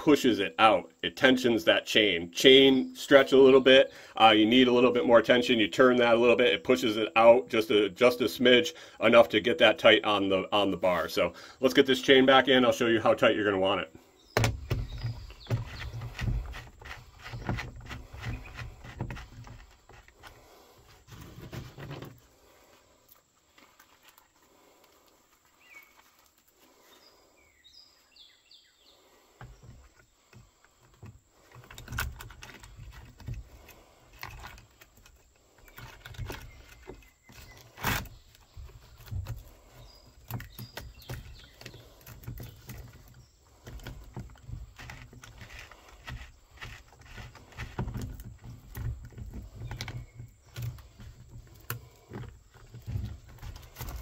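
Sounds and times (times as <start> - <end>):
faint bird chirps: 25.4 - 30.3.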